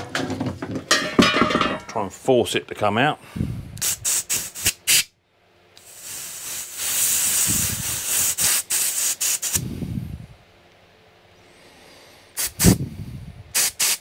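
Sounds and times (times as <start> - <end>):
compressed air hissing: 3.4 - 5.1, 5.8 - 10.2, 11.8 - 14.0.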